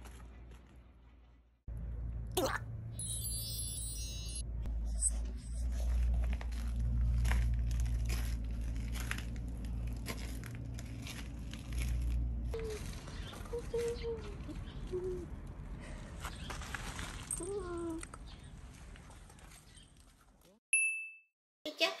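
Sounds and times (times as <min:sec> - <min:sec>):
twinkling chime sound effect: 0:02.9 - 0:05.6.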